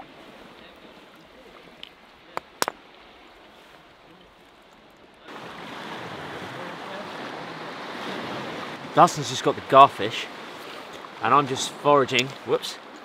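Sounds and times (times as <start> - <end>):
wind: 0.0 - 13.0
stone knocking on rock: 2.4 - 2.8
surf: 5.3 - 13.0.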